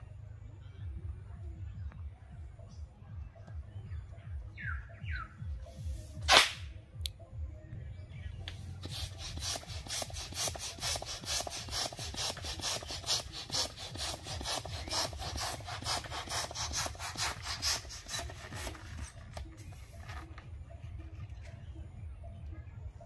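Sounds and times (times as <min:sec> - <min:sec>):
hand pump hissing strokes: 0:08.8 - 0:19.3.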